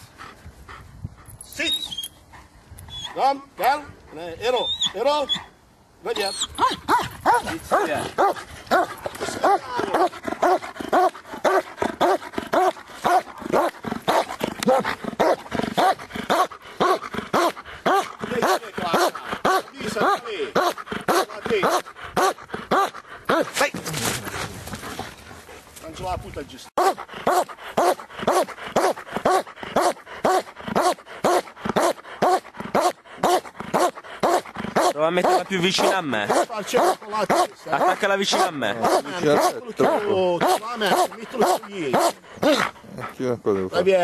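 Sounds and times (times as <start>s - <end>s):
large dog barking: 6.6s - 23.6s, 26.8s - 42.8s.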